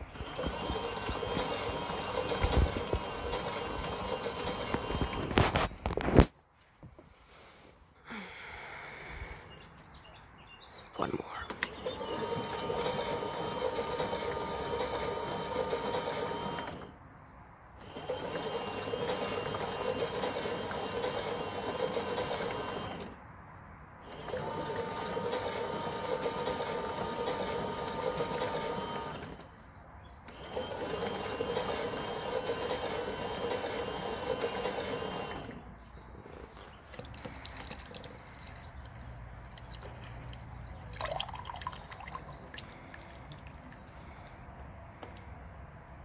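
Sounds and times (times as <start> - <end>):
toy washing machine motor humming: 0.0 - 5.4, 11.6 - 17.0, 17.8 - 23.2, 24.0 - 29.4, 30.3 - 35.7, 36.9 - 45.3.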